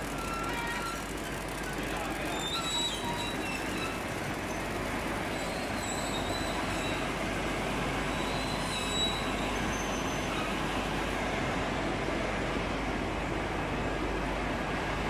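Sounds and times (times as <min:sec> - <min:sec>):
machine running: 0:00.0 - 0:05.8
faint high squeaks: 0:02.2 - 0:07.1, 0:08.1 - 0:10.6.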